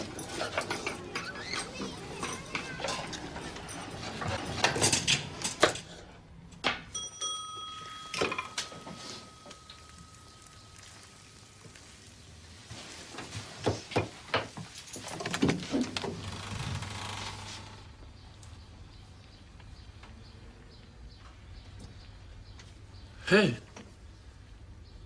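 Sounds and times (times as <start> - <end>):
bright bell ding: 6.9 - 10.8.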